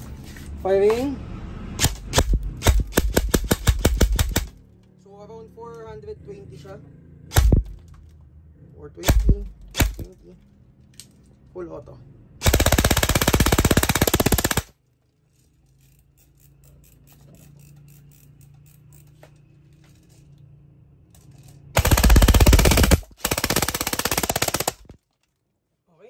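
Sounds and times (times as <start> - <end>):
airsoft gun firing bursts: 1.8 - 4.5, 9.1 - 10.1, 12.4 - 14.7, 21.8 - 25.0.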